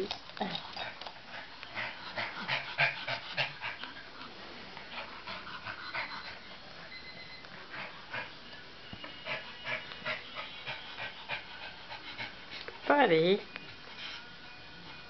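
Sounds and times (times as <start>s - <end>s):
small dog breathing quickly: 1.2s - 4.2s, 4.8s - 6.5s.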